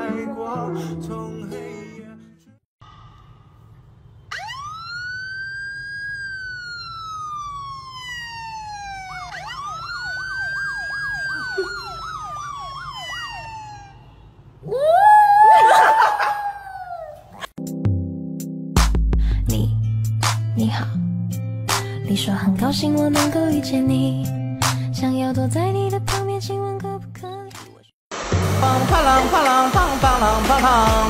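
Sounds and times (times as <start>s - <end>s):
siren wailing: 4.2s - 16.9s
siren yelp: 4.3s - 14.2s.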